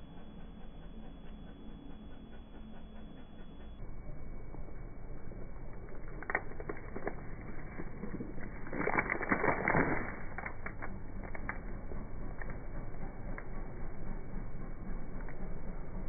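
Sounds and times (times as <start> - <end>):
tyre crushing onions: 5.8 - 11.6.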